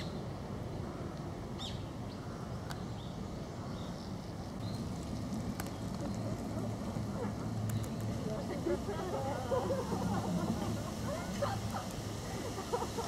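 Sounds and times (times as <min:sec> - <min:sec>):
small birds chirping: 0:00.0 - 0:08.8.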